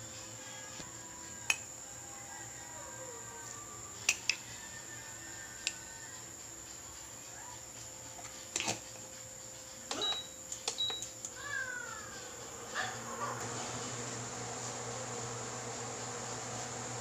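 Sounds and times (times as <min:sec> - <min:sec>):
steady high whine: 0:00.0 - 0:17.0
cooktop beeps: 0:09.9 - 0:11.2.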